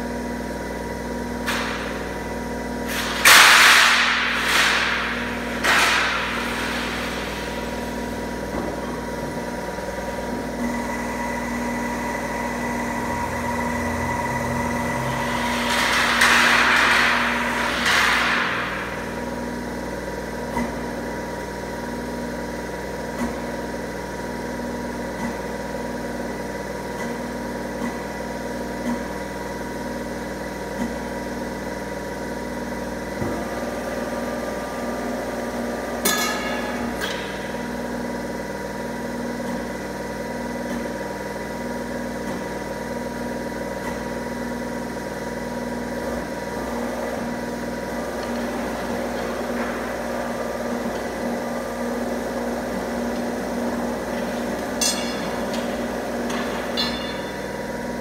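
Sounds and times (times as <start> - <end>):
bending machine motor hum: 0.0 - 58.0
sharp metallic clanks: 54.8 - 57.6.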